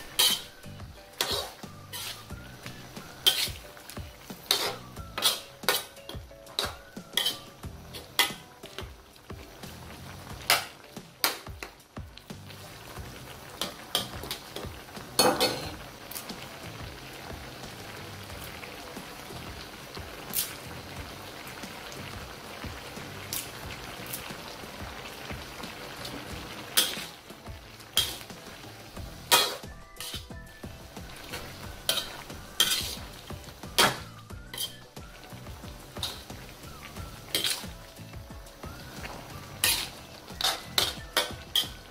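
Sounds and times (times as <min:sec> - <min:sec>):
metal ladle scraping a wok: 0:00.0 - 0:02.4, 0:03.0 - 0:08.5, 0:26.7 - 0:27.2, 0:28.0 - 0:28.3, 0:29.2 - 0:30.4, 0:31.2 - 0:35.0, 0:35.9 - 0:36.4, 0:37.2 - 0:37.8, 0:39.6 - 0:41.9
food sizzling: 0:00.0 - 0:41.9.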